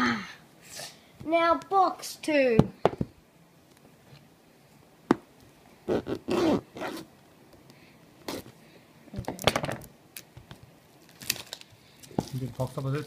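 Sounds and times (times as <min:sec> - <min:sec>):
plastic wrap ripping: 0:11.0 - 0:13.0.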